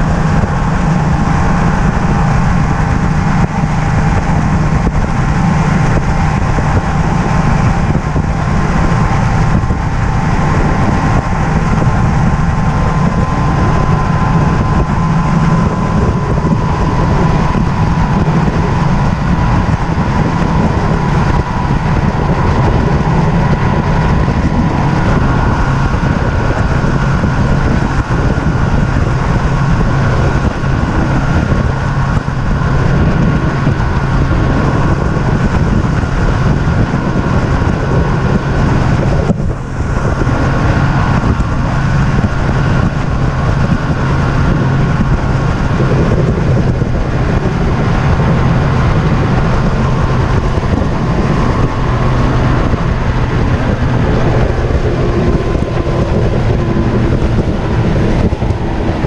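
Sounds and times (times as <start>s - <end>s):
outboard engine running: 0.0s - 59.0s
water rushing past boat: 0.0s - 59.0s
wind rushing: 0.0s - 59.0s.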